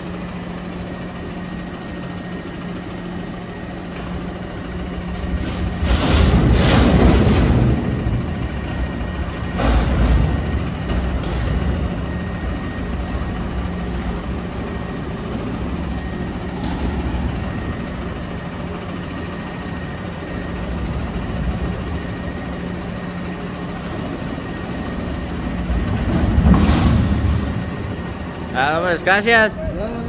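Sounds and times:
garbage truck idling: 0.0s - 30.0s
clunk: 5.2s - 17.7s, 23.7s - 28.0s.

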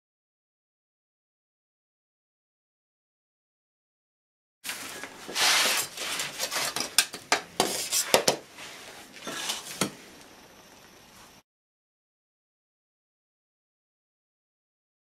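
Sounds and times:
metal trowel scraping sand: 4.7s - 9.9s.

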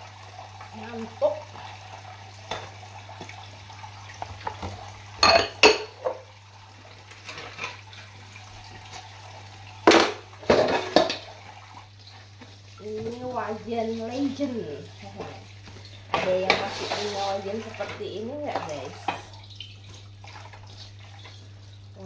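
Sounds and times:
ceramic bowls clattering: 4.4s - 6.2s, 9.8s - 11.3s
sponge scrubbing: 16.3s - 19.0s.

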